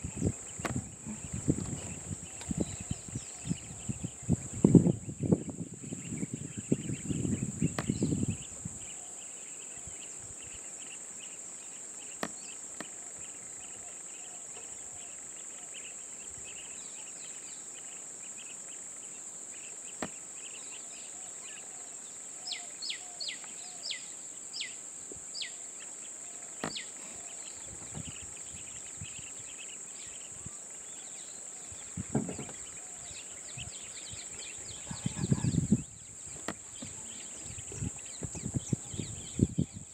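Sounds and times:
bird chirps: 0:26.6 - 0:39.9.

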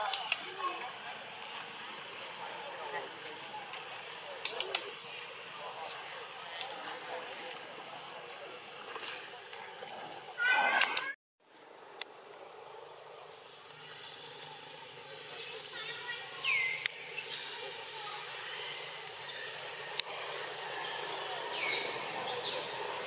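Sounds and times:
high-pitched insect whine: 0:00.0 - 0:10.3, 0:11.6 - 0:23.0
faint clicks: 0:04.4 - 0:04.9.

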